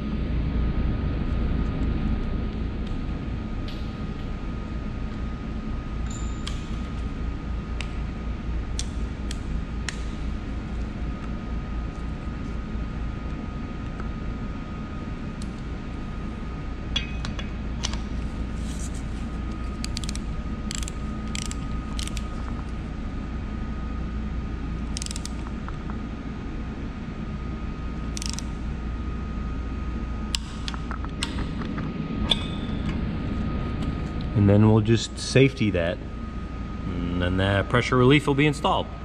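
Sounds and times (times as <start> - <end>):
workshop hum: 0.0 - 39.0
socket wrench ratcheting: 19.8 - 22.4, 24.9 - 25.4, 28.2 - 28.5
faint high whine: 31.7 - 39.0.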